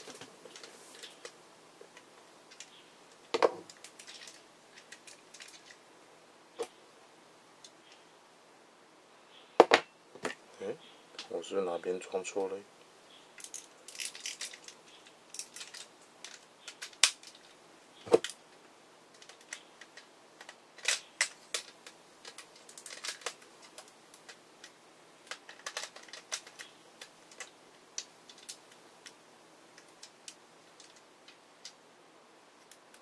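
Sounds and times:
plastic toy parts clicking: 0:03.6 - 0:05.8, 0:13.4 - 0:17.5, 0:19.1 - 0:29.2, 0:29.8 - 0:31.8.

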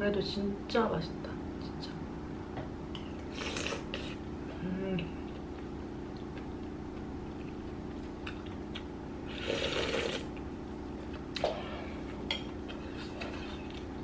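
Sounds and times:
steady low hum: 0:00.0 - 0:14.0
noodles being slurped: 0:03.3 - 0:04.2, 0:09.3 - 0:10.3.

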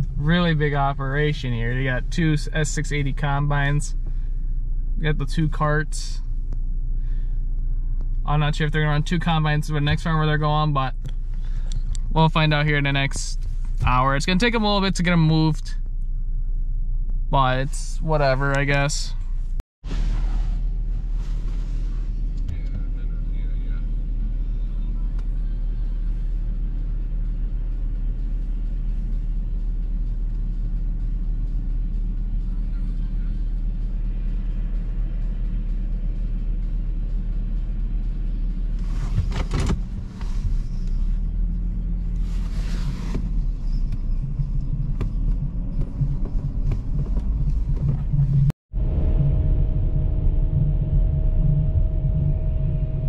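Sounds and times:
heavy machinery engine rumble: 0:17.3 - 0:53.0.

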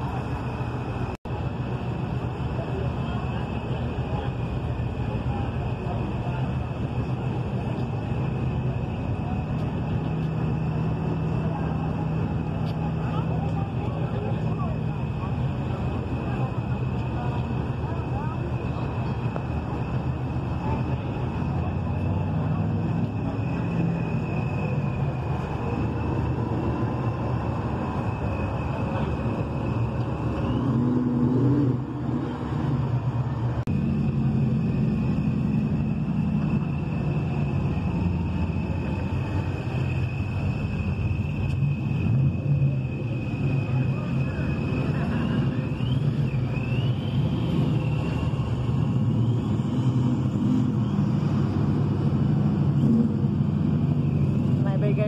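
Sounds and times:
car engine idling: 0:00.0 - 0:55.0.

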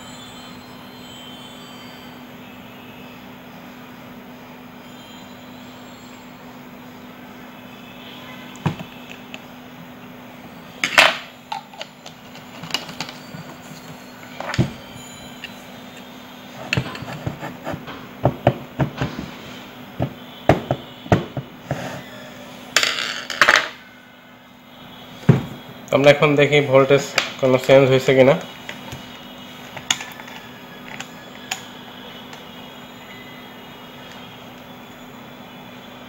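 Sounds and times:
plastic scraping on table: 0:16.6 - 0:18.0, 0:21.4 - 0:22.1.

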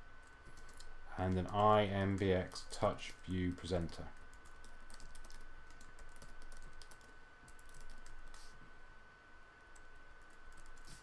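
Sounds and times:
typing on computer keyboard: 0:00.2 - 0:02.3, 0:03.5 - 0:08.2, 0:09.8 - 0:11.0.

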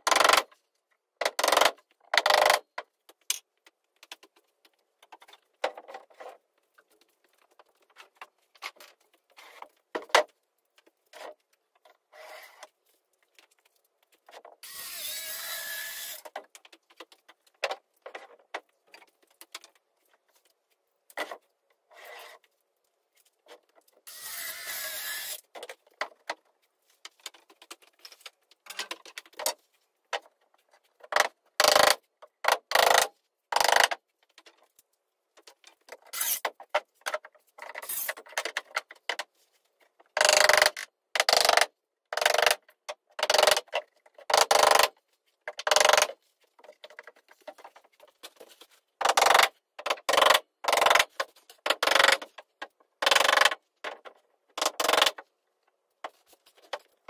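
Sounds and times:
power screwdriver whirring: 0:14.6 - 0:16.2.

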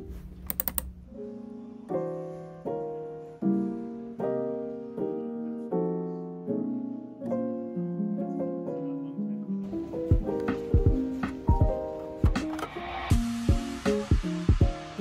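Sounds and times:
soft piano chords: 0:00.0 - 0:15.0
quick clicks: 0:00.4 - 0:00.9.

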